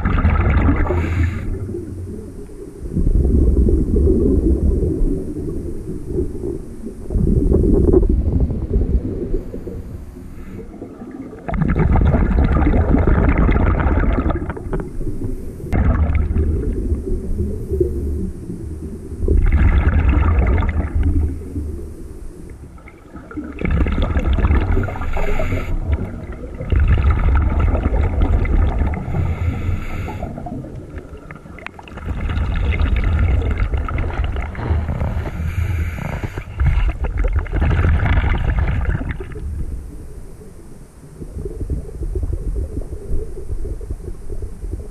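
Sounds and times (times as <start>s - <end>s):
exhaled air bubbling: 0.0s - 44.9s
regulator breathing underwater: 0.7s - 3.1s, 9.4s - 12.3s, 24.6s - 26.4s, 28.5s - 31.0s, 32.0s - 39.0s.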